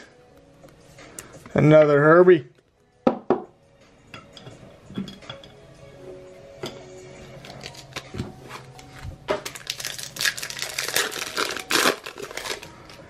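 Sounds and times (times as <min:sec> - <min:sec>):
wrapper crinkling and tearing: 0:07.4 - 0:08.0, 0:09.4 - 0:13.0.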